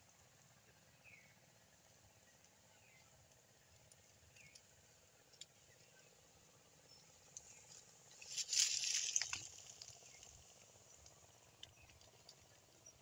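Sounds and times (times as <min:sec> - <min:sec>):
rustling: 0:07.5 - 0:10.6.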